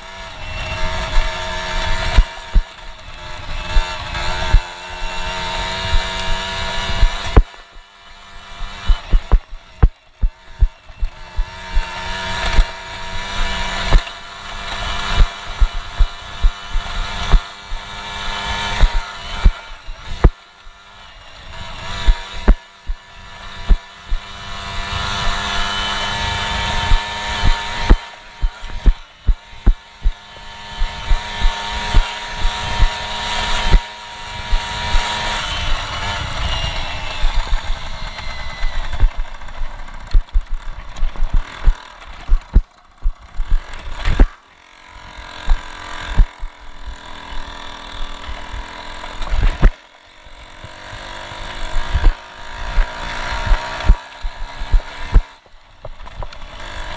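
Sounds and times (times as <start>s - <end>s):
moped engine running: 0.0s - 56.9s
knocks from jolts over dirt track: 3.5s - 7.8s, 8.6s - 20.4s, 21.8s - 33.9s, 34.5s - 44.4s, 48.2s - 49.8s.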